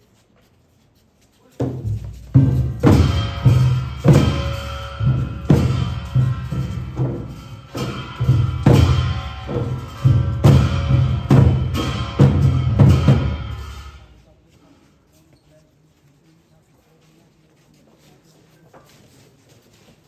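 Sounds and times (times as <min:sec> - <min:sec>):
large drums beating: 0:01.6 - 0:14.2.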